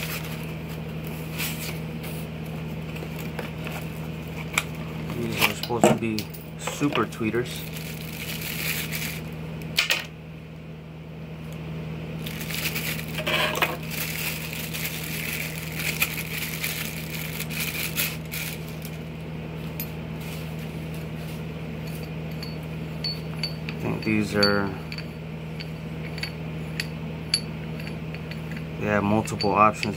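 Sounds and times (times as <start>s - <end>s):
steady low hum: 0.0s - 29.9s
plastic bag crinkling: 7.6s - 9.3s, 12.2s - 19.0s.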